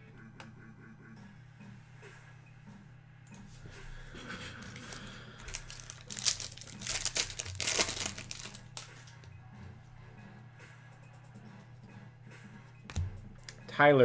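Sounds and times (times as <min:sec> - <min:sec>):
cards being handled: 0:04.6 - 0:09.3
foil wrapper crinkling: 0:04.7 - 0:09.2.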